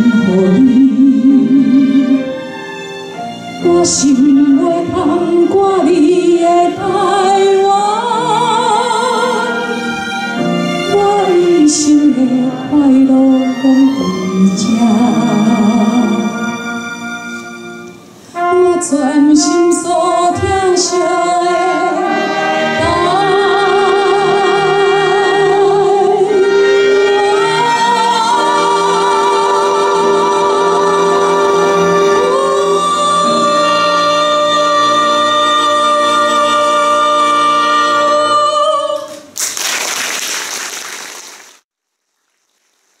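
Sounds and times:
woman singing with vibrato: 0.0 - 2.3, 3.6 - 9.7, 10.8 - 16.8, 18.4 - 39.3
string orchestra: 0.0 - 39.3
applause: 39.3 - 41.6.

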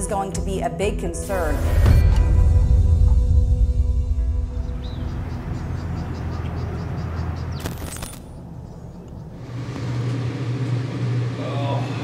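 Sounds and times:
low mechanical hum: 4.2 - 12.0.

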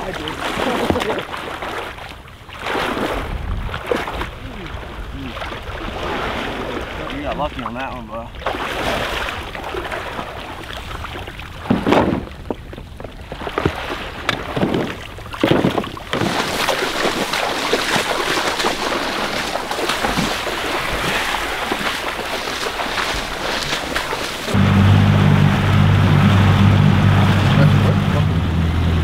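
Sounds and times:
people wading through water: 0.0 - 29.0
decoys thumping into a boat: 13.6 - 24.5
steady rushing noise: 19.5 - 29.0.

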